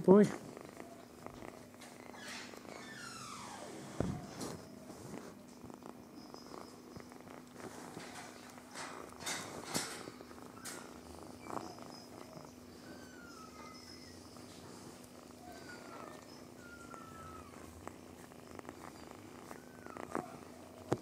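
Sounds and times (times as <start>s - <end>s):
cat purring: 0.0s - 21.0s.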